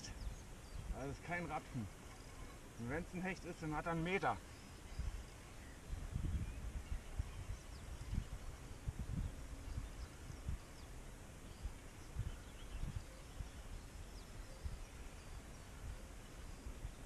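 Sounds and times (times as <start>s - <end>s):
faint bird chirps: 0.0s - 17.0s
wind buffeting microphone: 0.0s - 17.0s.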